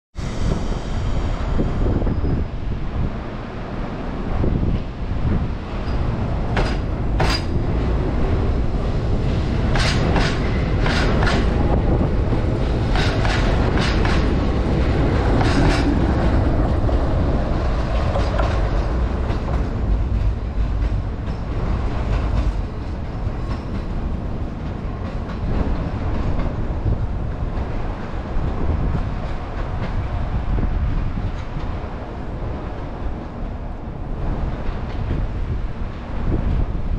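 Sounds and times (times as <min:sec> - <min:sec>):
train low rumble: 0:00.2 - 0:36.9
train wheels clicking over rail joints: 0:05.7 - 0:27.8.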